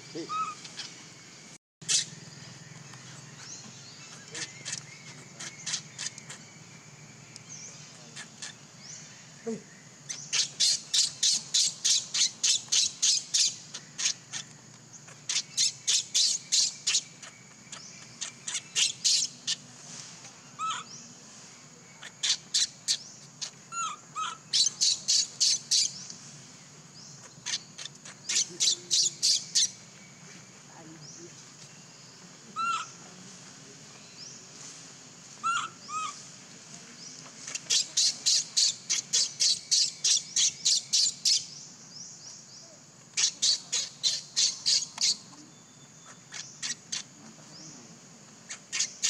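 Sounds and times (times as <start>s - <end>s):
high-pitched squeaking calls: 0.0s - 1.0s, 1.8s - 2.2s, 4.1s - 6.5s, 10.1s - 19.6s, 22.0s - 26.0s, 27.2s - 29.8s, 35.4s - 36.2s, 37.4s - 41.5s, 43.1s - 45.4s, 46.0s - 47.1s, 48.5s - 49.0s.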